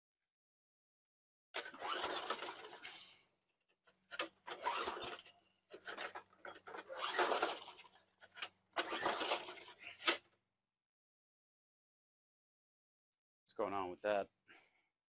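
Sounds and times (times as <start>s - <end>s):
lawn mower engine pull-start cranking: 1.6s - 2.8s, 4.1s - 10.2s.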